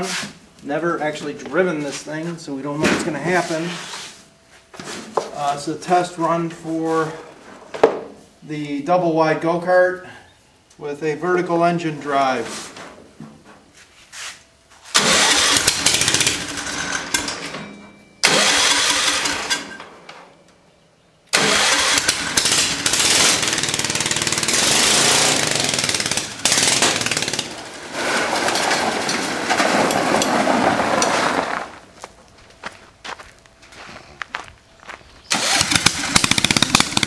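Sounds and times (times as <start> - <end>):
small engine running: 15.0 - 17.3, 18.2 - 19.7, 21.4 - 27.5, 35.3 - 37.0.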